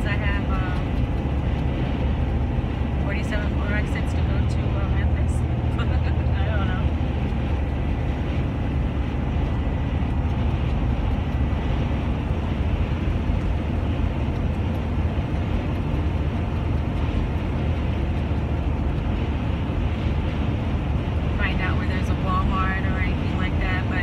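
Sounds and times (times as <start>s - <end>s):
vehicle engine and tyre rumble: 0.0s - 24.0s.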